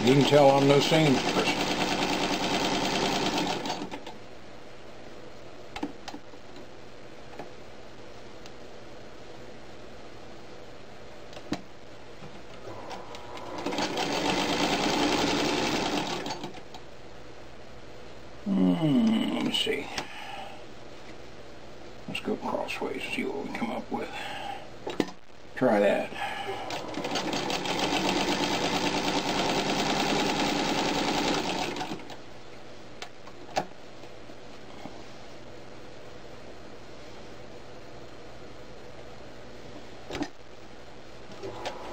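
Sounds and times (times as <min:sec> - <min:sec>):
sewing machine stitching: 0:00.5 - 0:04.1, 0:12.7 - 0:16.6, 0:26.7 - 0:32.2.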